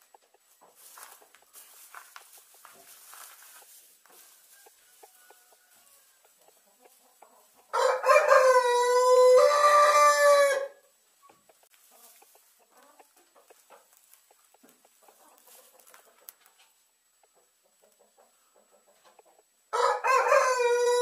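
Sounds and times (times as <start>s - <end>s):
rooster crowing: 4.4s - 6.3s, 7.7s - 10.8s, 19.7s - 21.0s.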